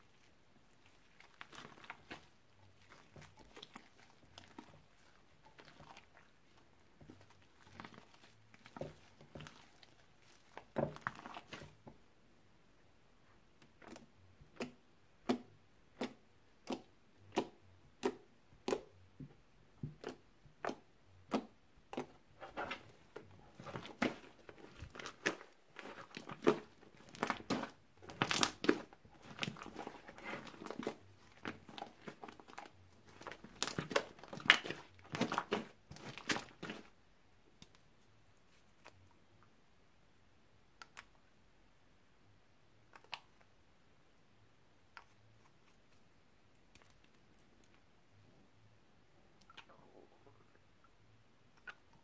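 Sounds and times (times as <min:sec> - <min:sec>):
slime crackling and popping: 0:23.6 - 0:36.9.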